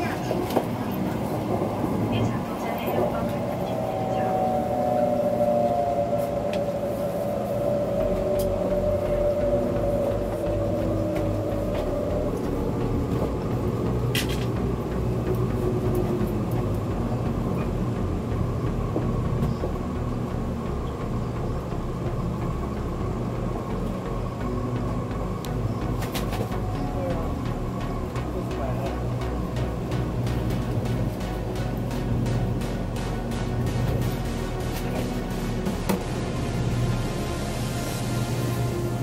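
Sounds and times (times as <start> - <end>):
train interior low rumble: 0.0 - 39.0
train whine falling in pitch: 2.3 - 14.0.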